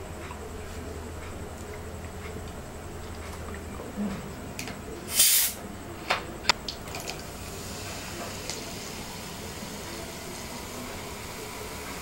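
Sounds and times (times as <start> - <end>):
soda fizz hissing: 5.1 - 5.6, 7.1 - 12.0.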